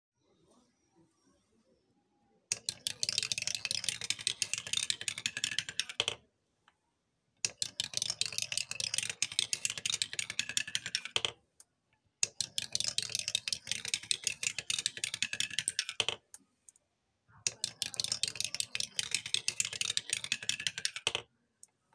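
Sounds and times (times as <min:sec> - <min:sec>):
marbles clicking down a wooden run: 0:02.5 - 0:06.2, 0:07.4 - 0:11.4, 0:12.2 - 0:16.2, 0:17.5 - 0:21.3.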